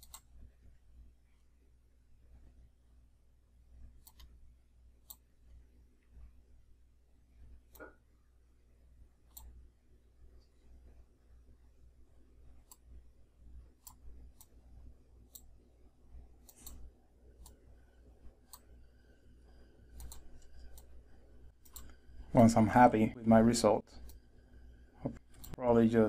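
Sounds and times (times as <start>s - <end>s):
computer mouse clicks: 0.0s - 0.4s, 4.0s - 4.4s, 5.0s - 5.3s, 9.2s - 9.6s, 12.6s - 12.9s, 13.8s - 14.7s, 15.3s - 15.6s, 16.4s - 17.6s, 18.4s - 22.2s, 23.9s - 24.3s, 25.1s - 25.6s
low electrical hum: 0.0s - 26.0s.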